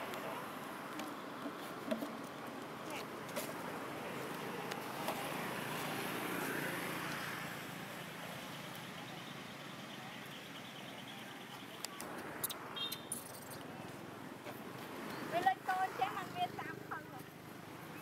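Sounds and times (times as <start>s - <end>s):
vehicle passing by: 3.6s - 9.7s.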